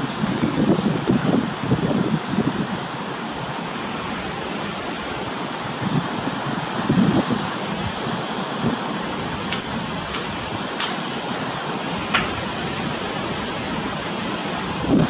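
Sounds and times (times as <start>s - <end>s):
wind buffeting microphone: 0.0s - 15.0s
ocean surf: 1.0s - 15.0s.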